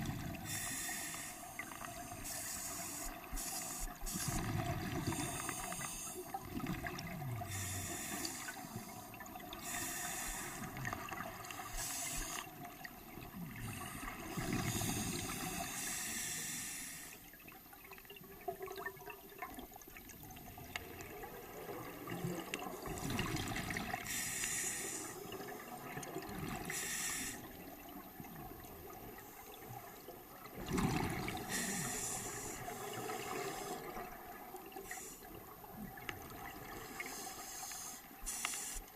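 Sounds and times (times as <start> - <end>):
air hissing through regulator: 0.4 - 6.3, 7.4 - 12.6, 13.6 - 17.2, 24.1 - 25.2, 26.7 - 27.5, 31.5 - 33.9, 37.0 - 38.9
gurgling exhaled bubbles: 6.2 - 7.9, 18.1 - 24.1, 29.8 - 32.0.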